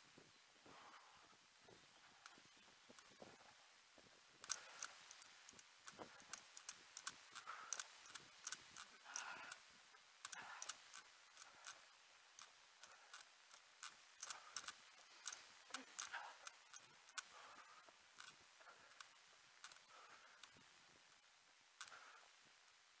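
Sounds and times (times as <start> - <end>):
faint clicks and light taps: 0.2 - 22.4.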